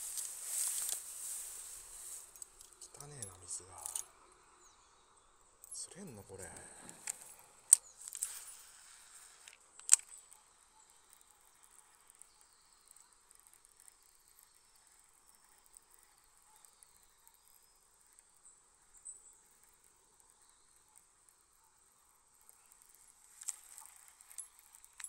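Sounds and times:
crickets and insects chirping: 0.0 - 25.0
sharp clicks: 9.4 - 10.5.

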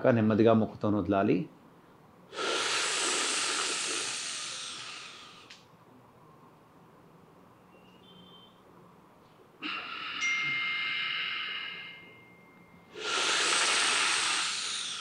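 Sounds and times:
long hissing breath out: 2.3 - 5.6, 9.6 - 12.1, 12.9 - 15.0
whistling breath in: 12.9 - 15.0.

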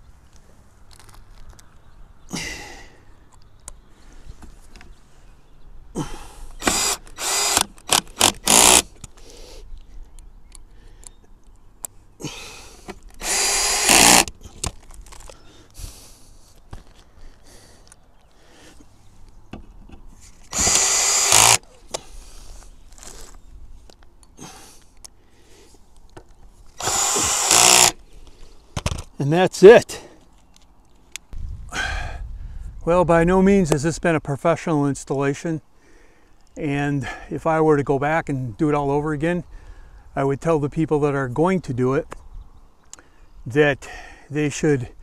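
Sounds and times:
cordless drill driving screws: 6.6 - 9.0, 12.9 - 14.7, 20.4 - 21.6, 26.8 - 28.0.

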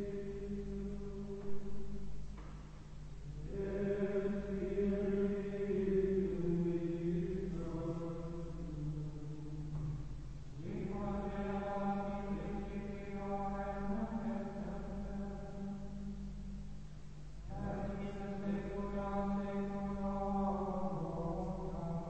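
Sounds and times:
men chanting in unison: 3.3 - 9.9, 10.5 - 15.8, 17.5 - 22.0.

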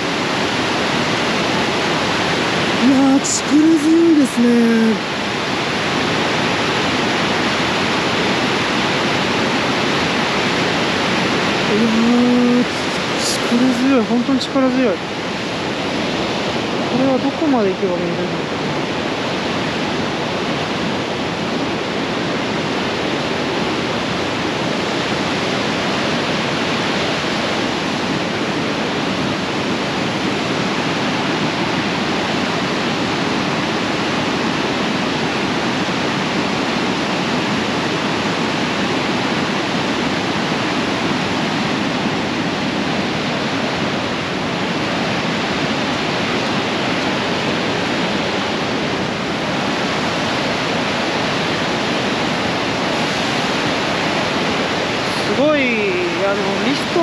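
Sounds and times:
river rapids rushing: 0.0 - 57.0.

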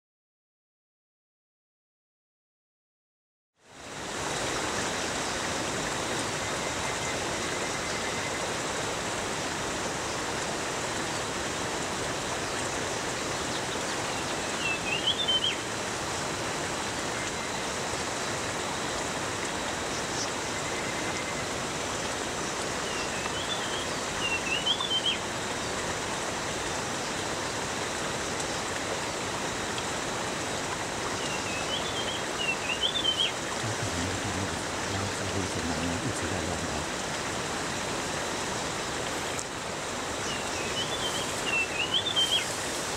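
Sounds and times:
forest stream rushing: 3.6 - 42.9.

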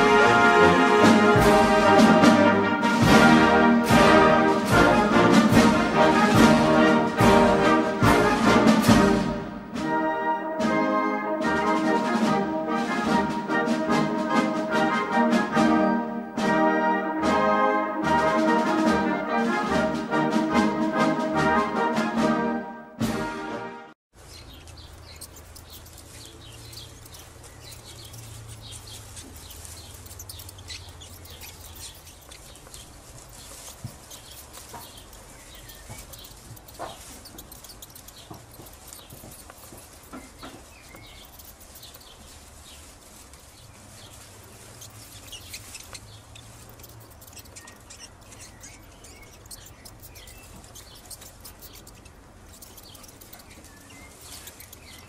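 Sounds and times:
dry straw rustling: 24.1 - 55.0
small birds chirping: 24.1 - 55.0.

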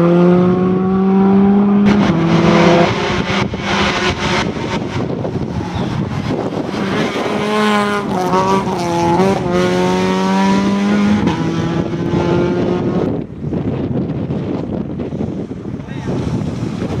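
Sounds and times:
rally car engine revving: 0.0 - 14.8
road and tyre noise: 0.0 - 17.0.

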